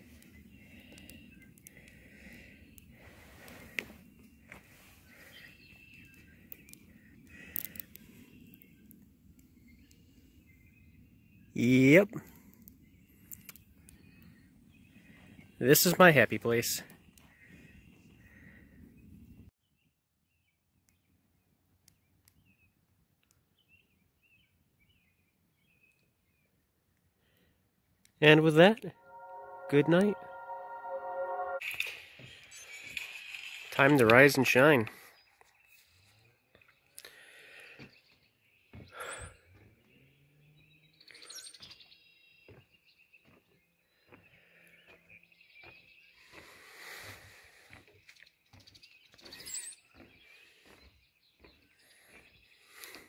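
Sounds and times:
faint birdsong chirps and trills: 0:00.0 - 0:31.6, 0:34.1 - 0:53.0
faint high chirping calls: 0:48.1 - 0:53.0.

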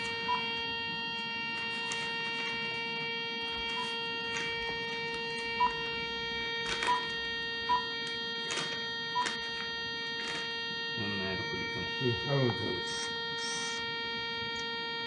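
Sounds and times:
electronic hum: 0:00.0 - 0:15.0
short beeps: 0:05.6 - 0:05.9, 0:06.8 - 0:08.0.

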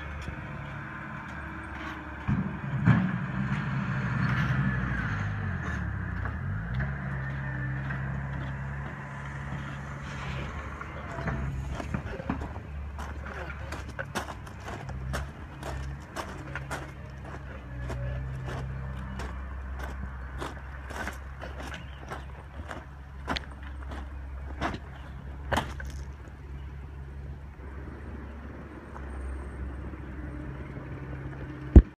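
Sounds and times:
engine running steadily: 0:00.0 - 0:31.9.

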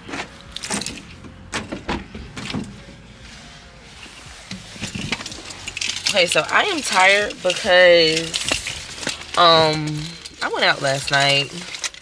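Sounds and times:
rustling: 0:02.6 - 0:12.0.

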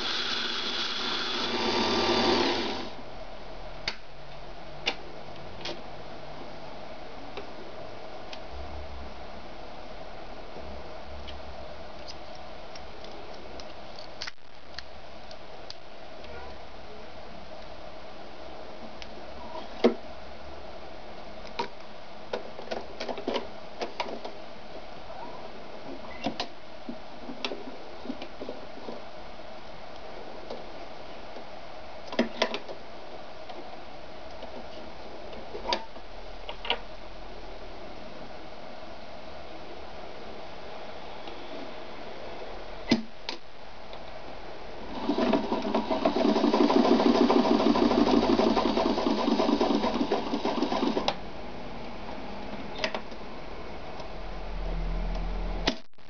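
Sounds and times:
sewing machine stitching leather: 0:00.0 - 0:02.9, 0:44.9 - 0:51.2
faint steady hum: 0:00.0 - 0:56.0.

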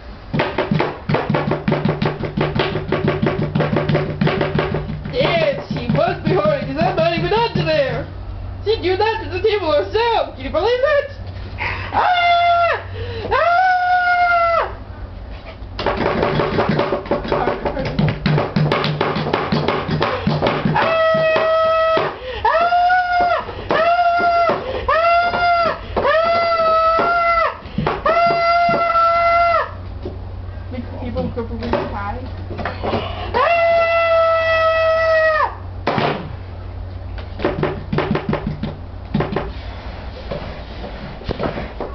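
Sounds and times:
person wailing: 0:11.6 - 0:14.8, 0:20.1 - 0:29.8, 0:33.0 - 0:35.6.

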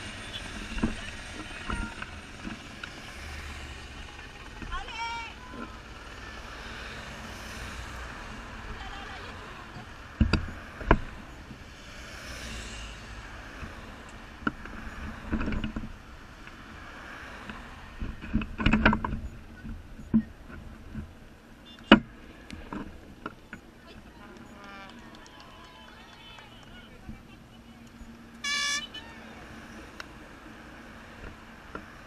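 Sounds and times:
motorcycle passing: 0:00.0 - 0:20.3
cars passing: 0:00.0 - 0:32.0.

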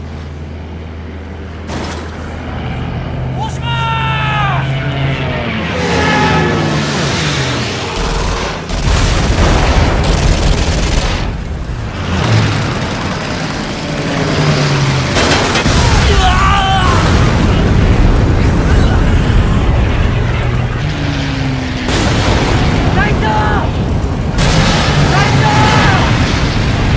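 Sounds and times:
fighter plane engines: 0:00.0 - 0:26.9
explosions: 0:07.9 - 0:13.2, 0:15.0 - 0:26.9
machine gun fire: 0:08.0 - 0:11.4.

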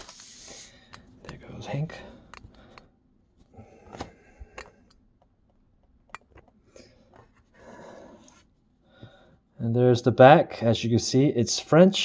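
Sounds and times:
paper rustling: 0:00.0 - 0:00.7.

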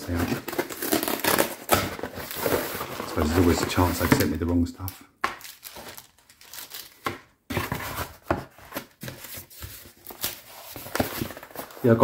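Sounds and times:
packaging rustling and crinkling: 0:00.0 - 0:04.7, 0:05.3 - 0:12.0.

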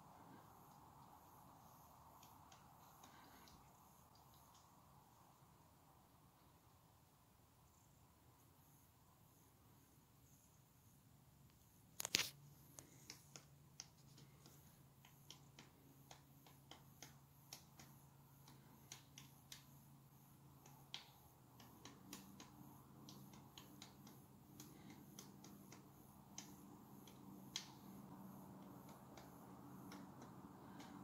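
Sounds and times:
faint low hum: 0:00.0 - 0:31.0
woodpecker tapping on trunk: 0:12.0 - 0:19.8.

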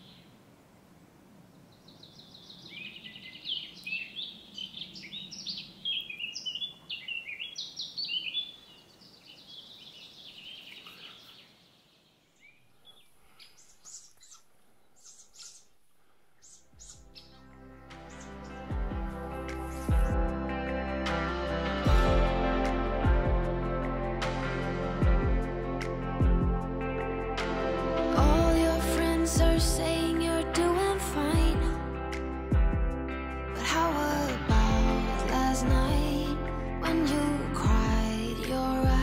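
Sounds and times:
songbird twittering song: 0:00.0 - 0:00.4, 0:01.5 - 0:20.2
faint forest ambience: 0:00.0 - 0:21.8.

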